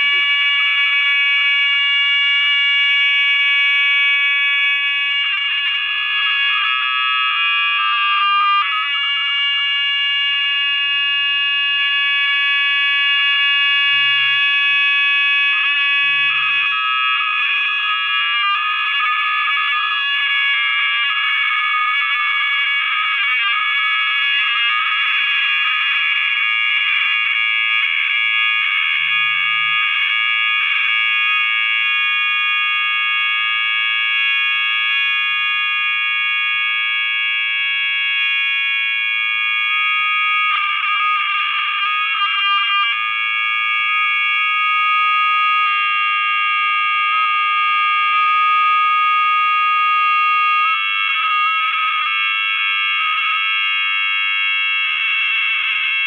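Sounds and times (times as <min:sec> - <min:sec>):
high-pitched electronic drone: 0:00.0 - 0:00.4, 0:05.3 - 0:09.1, 0:10.9 - 0:25.2, 0:28.9 - 0:30.0, 0:39.7 - 0:44.2.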